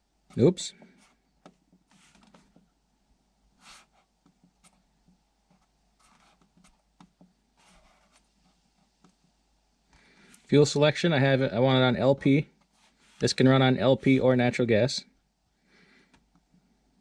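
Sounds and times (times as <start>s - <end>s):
soft rustles: 0.3s - 2.7s, 12.6s - 13.3s.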